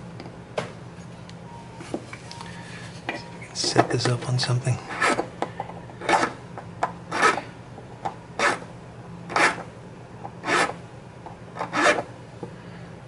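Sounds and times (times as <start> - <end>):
file rasping across pipe stem: 4.9 - 5.3, 7.1 - 7.4, 10.4 - 10.8, 11.6 - 12.1.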